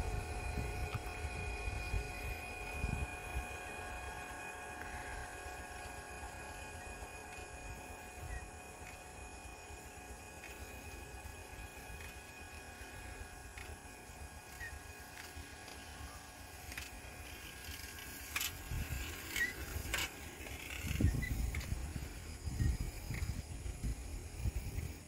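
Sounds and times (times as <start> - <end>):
low microphone rumble: 0.0 - 5.9.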